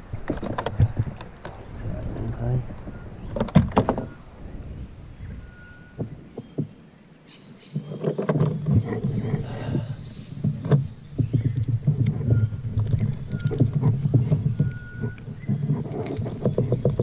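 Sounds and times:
sharp clicks and knocks: 0:00.0 - 0:04.2, 0:07.8 - 0:17.0
rough rustling: 0:00.0 - 0:17.0.

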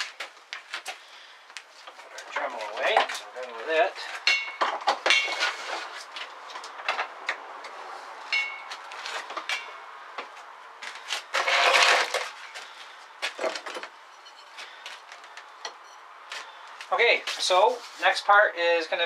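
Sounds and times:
short metallic ring: 0:08.3 - 0:08.7.

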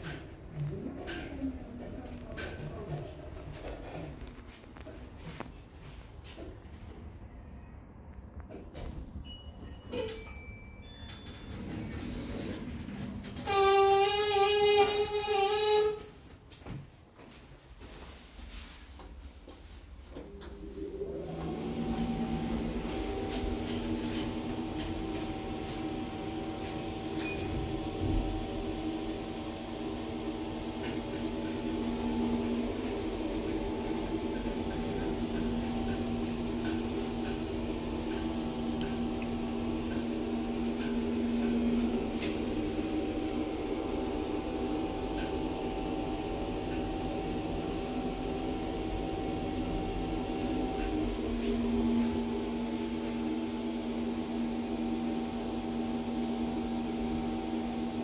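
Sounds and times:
elevator hum: 0:09.2 - 0:16.0, 0:20.0 - 0:58.0.

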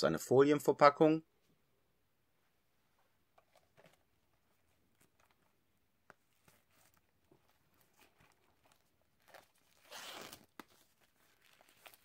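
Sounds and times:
plastic wrap rustling: 0:03.6 - 0:12.0.

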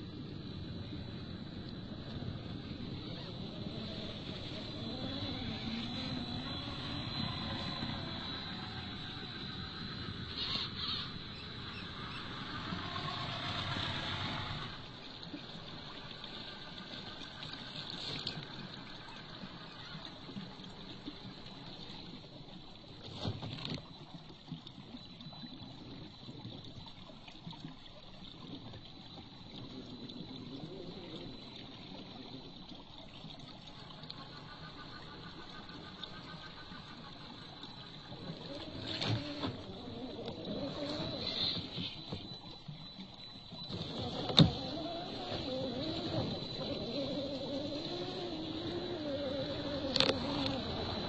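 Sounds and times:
stream water trickling: 0:00.0 - 0:51.0
electric motor whining: 0:02.6 - 0:10.7, 0:43.6 - 0:51.0.

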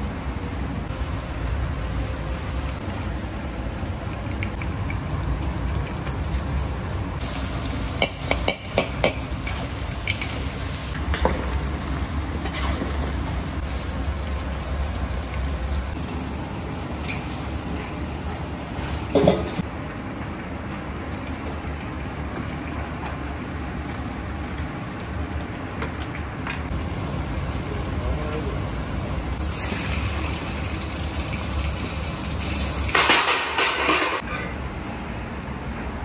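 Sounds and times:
meat and onions sizzling: 0:04.7 - 0:17.9, 0:29.4 - 0:33.4.

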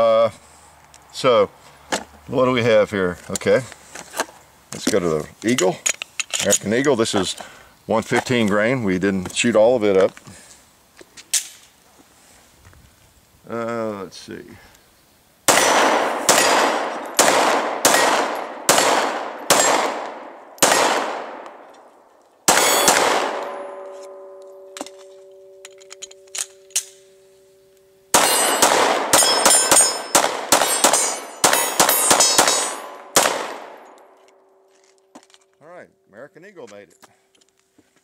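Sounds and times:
pistol shots: 0:15.5 - 0:21.6, 0:22.5 - 0:25.0, 0:28.1 - 0:34.0
bullets clanging on steel: 0:15.5 - 0:21.9, 0:22.5 - 0:27.5, 0:28.1 - 0:34.3
steel plate ringing: 0:22.5 - 0:33.0.

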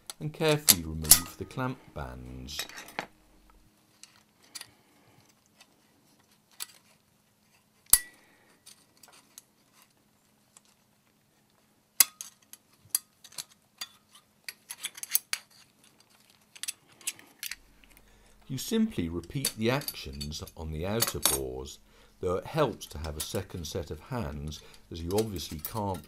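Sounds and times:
light metallic clicks and clinks: 0:19.1 - 0:21.6, 0:22.8 - 0:26.0.

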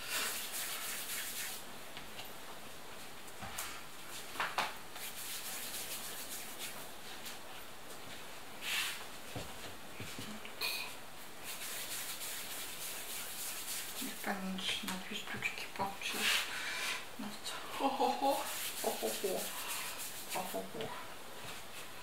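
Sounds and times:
hands rolling dough: 0:11.4 - 0:16.5, 0:17.8 - 0:21.9.

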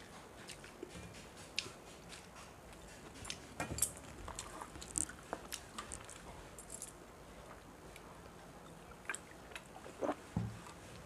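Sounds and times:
chewing: 0:00.0 - 0:06.8.

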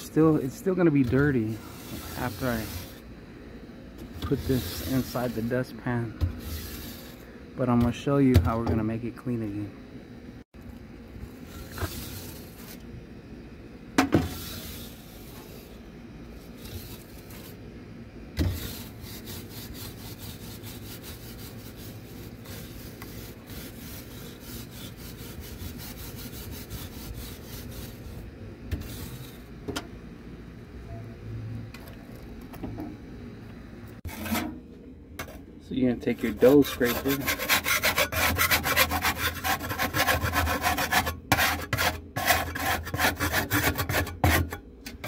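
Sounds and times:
bristle brush scraping brick floor: 0:00.0 - 0:03.0, 0:04.2 - 0:07.3, 0:11.3 - 0:12.8, 0:16.4 - 0:17.6, 0:18.4 - 0:29.5.

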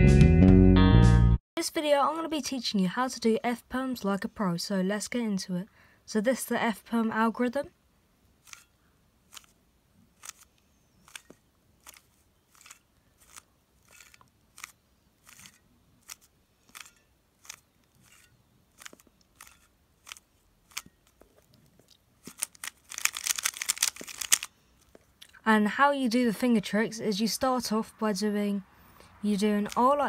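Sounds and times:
plastic puzzle cube layers clicking: 0:09.3 - 0:09.6, 0:10.2 - 0:18.2, 0:18.8 - 0:24.5.

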